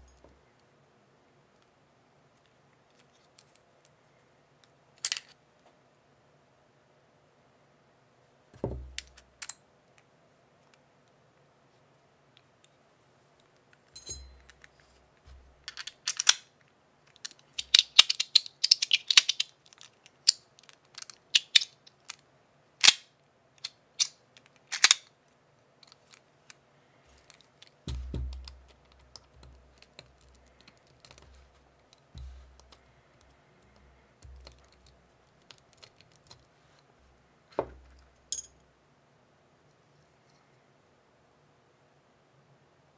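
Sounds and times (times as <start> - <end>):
dull handling knocks: 27.9 - 28.5.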